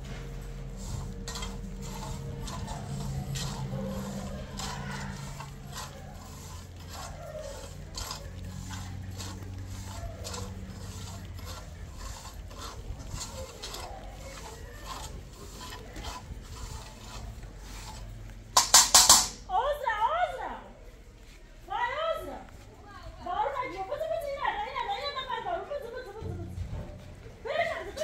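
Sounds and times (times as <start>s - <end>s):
metal spoon scraping a metal pan: 0.1s - 19.5s.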